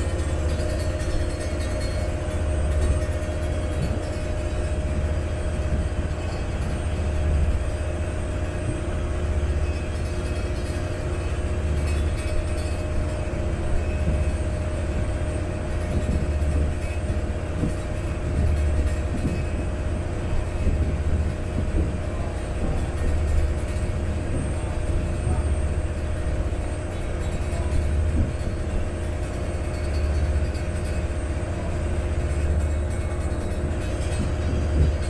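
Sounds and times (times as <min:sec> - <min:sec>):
boat diesel engine drone: 0:00.0 - 0:35.0
hiss of water and wind: 0:00.0 - 0:35.0.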